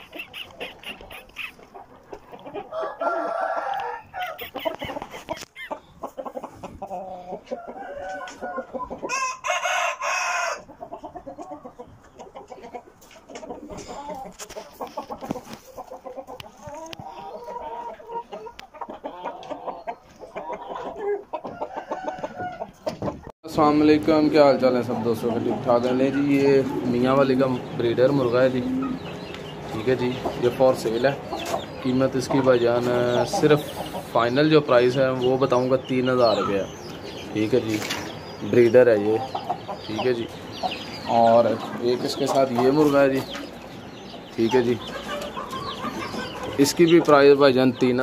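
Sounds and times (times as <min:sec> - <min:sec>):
rooster clucking and calling: 0:00.0 - 0:23.3, 0:27.6 - 0:34.1, 0:43.6 - 0:47.1
rooster crowing: 0:02.7 - 0:04.4, 0:07.6 - 0:10.7, 0:21.6 - 0:22.7.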